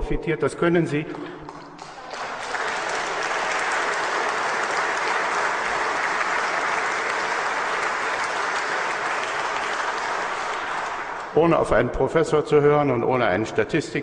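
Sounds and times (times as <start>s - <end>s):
large audience applauding: 1.1s - 11.4s.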